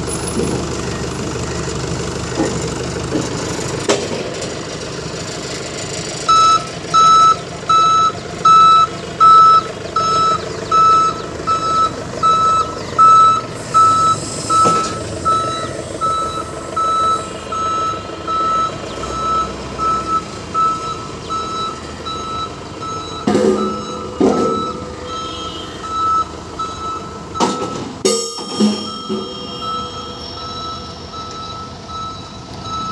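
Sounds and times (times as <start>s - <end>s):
forklift engine running: 0.0s - 32.9s
reversing alarm beeping: 6.2s - 32.9s
loud metallic clanks: 23.1s - 26.0s, 26.6s - 31.7s.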